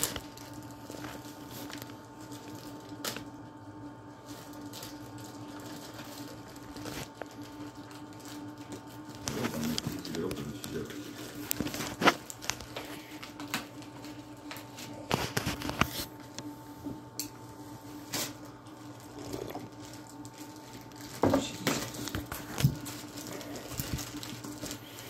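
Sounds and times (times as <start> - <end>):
plastic bag crinkling and rustling: 0.0 - 3.4, 4.1 - 16.6, 17.8 - 25.0.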